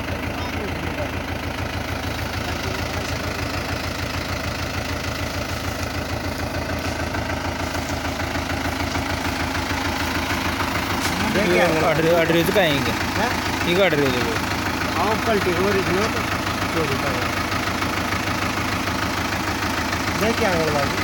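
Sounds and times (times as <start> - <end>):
tractor diesel engine idling: 0.0 - 21.0.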